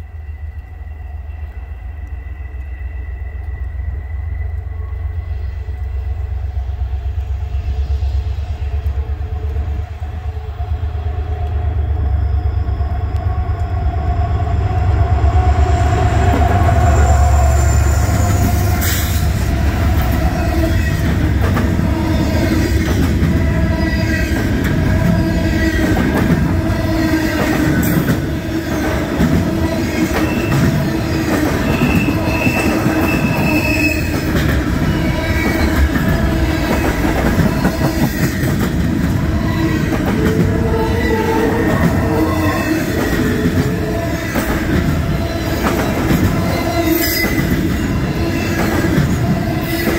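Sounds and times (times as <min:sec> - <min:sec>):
diesel locomotive rumble: 0:00.0 - 0:49.9
high wheel squeal: 0:15.6 - 0:49.9
train wheels clacking on rails: 0:16.2 - 0:49.9.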